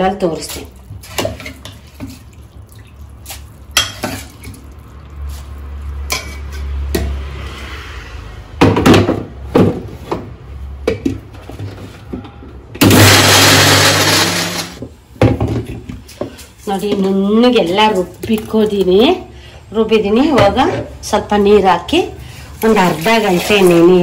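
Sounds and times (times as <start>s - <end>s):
mixer grinder running: 12.8s - 14.8s.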